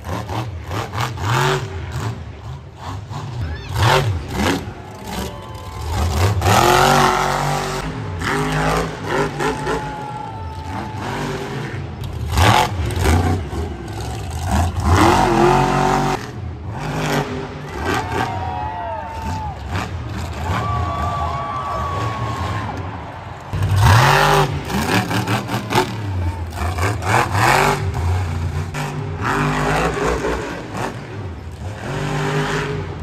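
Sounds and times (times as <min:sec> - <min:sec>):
truck engine revving hard: 0:00.0 - 0:18.4, 0:23.5 - 0:33.0.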